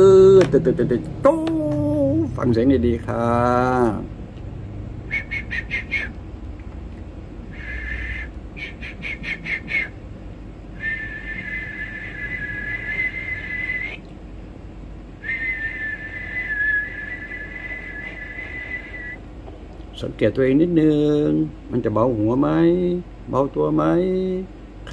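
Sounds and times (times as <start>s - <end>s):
man whistling: 5.1s - 6.2s, 7.5s - 10.0s, 10.8s - 14.0s, 15.2s - 19.2s.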